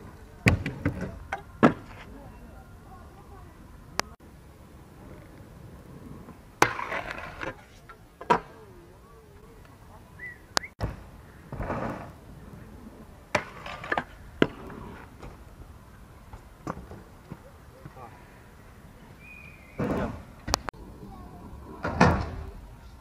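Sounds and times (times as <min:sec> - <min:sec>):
wheels rolling on asphalt: 0:00.0 - 0:23.0
scooter grinding on metal rail: 0:05.0 - 0:08.6, 0:11.5 - 0:15.4.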